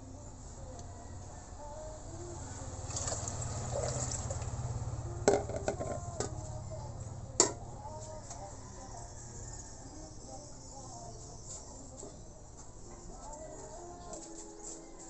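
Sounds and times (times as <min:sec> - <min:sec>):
liquid pouring: 0:02.8 - 0:04.5.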